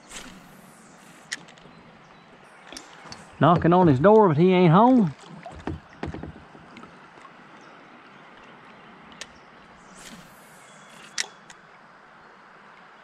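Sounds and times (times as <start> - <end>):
fishing reel hiss: 0.0 - 1.6, 9.8 - 11.6
quiet river ambience: 0.0 - 13.0.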